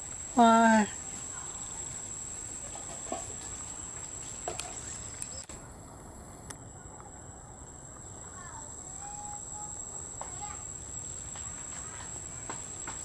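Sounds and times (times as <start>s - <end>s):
background hiss: 0.0s - 13.0s
high-pitched insect drone: 7.2s - 13.0s.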